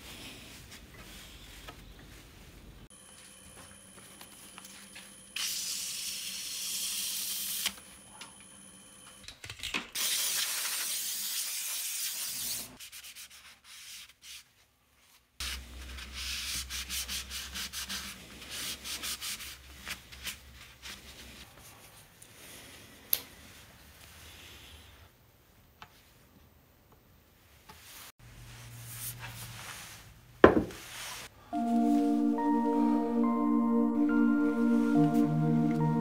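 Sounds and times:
sanding wood: 0:15.4 - 0:19.6.

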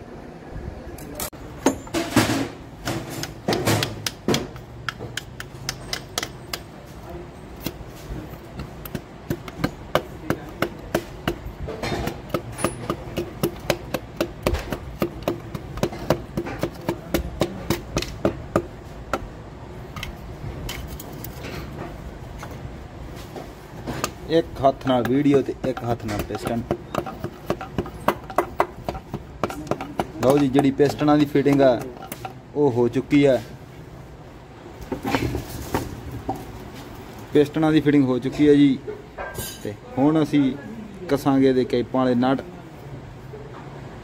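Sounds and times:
wooden handle tapping piston: 0:03.2 - 0:06.7, 0:08.6 - 0:19.3, 0:24.8 - 0:32.4.

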